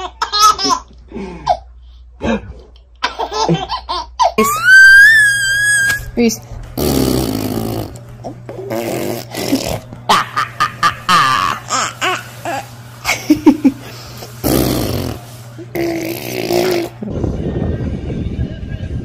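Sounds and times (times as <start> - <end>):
laughter in short bursts: 13.0 - 13.9.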